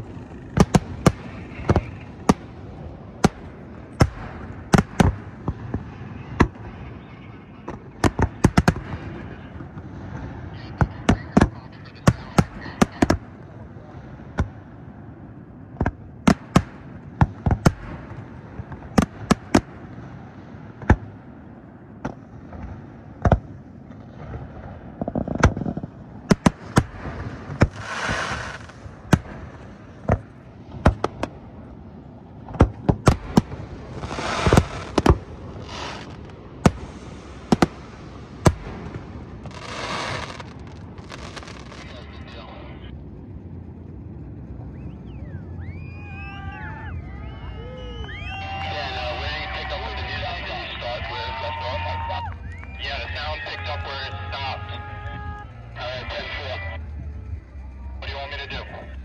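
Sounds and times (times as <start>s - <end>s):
hissing firework bursts: 0.0s - 15.2s, 15.8s - 42.8s
fireworks bangs: 0.0s - 57.4s.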